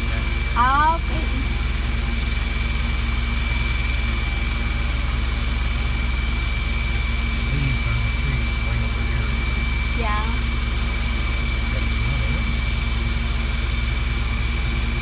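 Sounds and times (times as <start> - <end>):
helicopter rotor drone: 0.0 - 15.0
helicopter turbine whine: 0.0 - 15.0.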